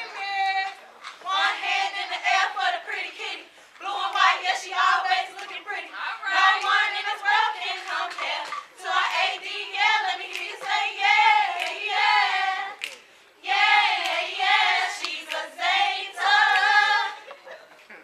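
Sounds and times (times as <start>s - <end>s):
women chanting in unison: 0.0s - 12.8s, 13.4s - 17.2s
hand claps: 10.2s - 11.9s, 12.8s - 14.3s, 15.0s - 15.5s, 16.5s - 16.8s.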